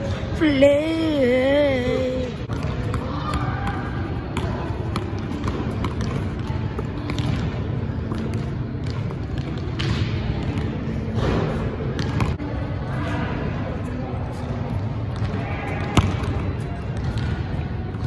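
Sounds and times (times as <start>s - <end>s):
basketball bouncing on gym floor: 2.5s - 12.4s, 15.1s - 18.0s.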